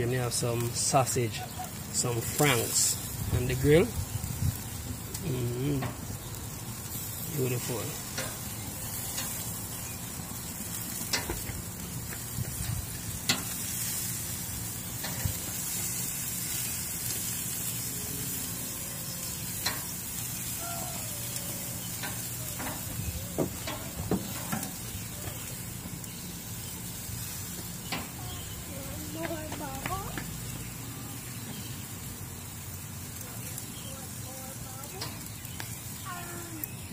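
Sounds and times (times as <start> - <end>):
hot dogs sizzling on grill: 0.0 - 36.9
tongs clicking on grate: 8.1 - 9.4, 11.0 - 11.5, 13.2 - 13.6, 15.0 - 15.2, 19.3 - 19.9, 21.8 - 22.9, 23.6 - 24.8, 34.9 - 35.7.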